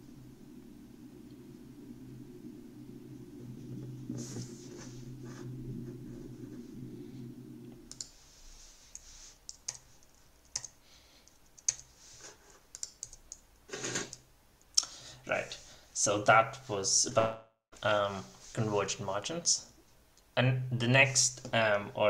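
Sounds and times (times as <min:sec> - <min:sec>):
low steady rumble: 0:00.0 - 0:09.2
keyboard and mouse clicks: 0:07.9 - 0:08.2, 0:08.9 - 0:12.0, 0:12.7 - 0:14.8.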